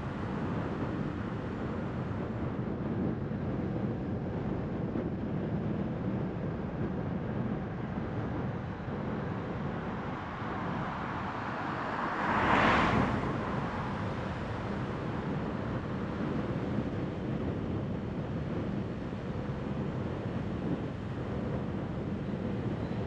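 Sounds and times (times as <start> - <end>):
car tyres on wet road: 10.0 - 15.0.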